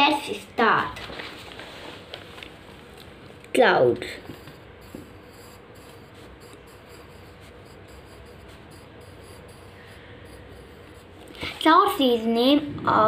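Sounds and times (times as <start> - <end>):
pencil scratching on paper: 4.2 - 12.0.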